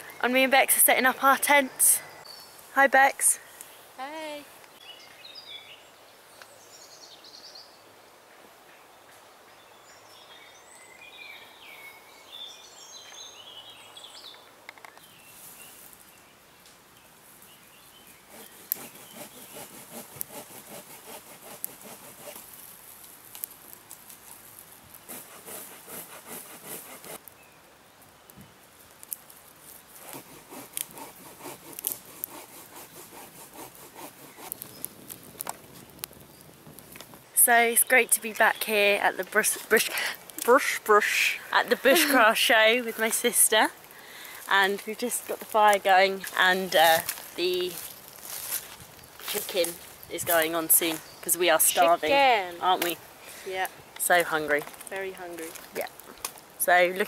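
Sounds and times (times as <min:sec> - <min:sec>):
twig fire crackling and popping: 0:00.0 - 0:04.8, 0:14.3 - 0:57.0
rustle: 0:00.0 - 0:57.0
birds singing: 0:04.7 - 0:07.8, 0:08.9 - 0:16.4, 0:17.4 - 0:19.8, 0:48.9 - 0:52.9
faint steady hiss: 0:34.4 - 0:57.0.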